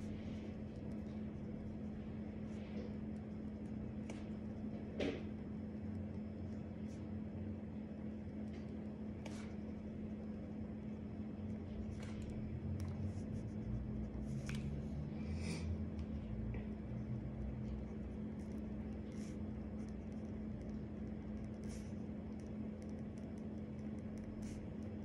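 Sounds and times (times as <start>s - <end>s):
low electrical hum: 0.0s - 25.0s
pen scratching on paper: 11.4s - 14.6s, 17.6s - 25.0s.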